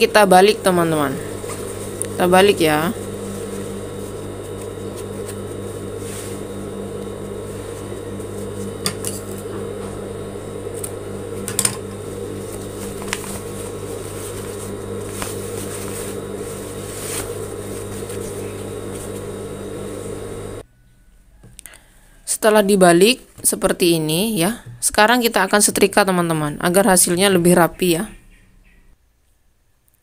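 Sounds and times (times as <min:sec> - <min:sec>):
steady mechanical hum: 0:00.0 - 0:29.0
fabric being handled: 0:01.2 - 0:20.6.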